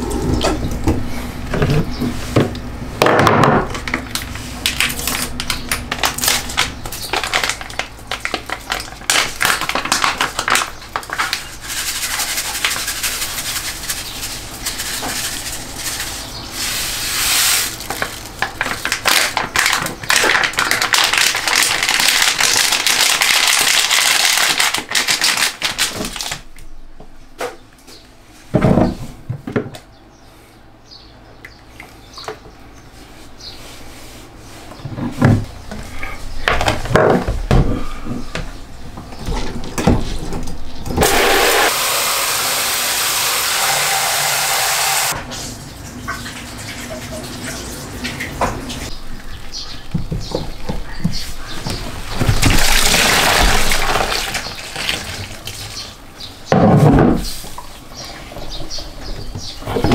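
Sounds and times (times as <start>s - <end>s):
powder pouring into water: 52.5s - 55.5s.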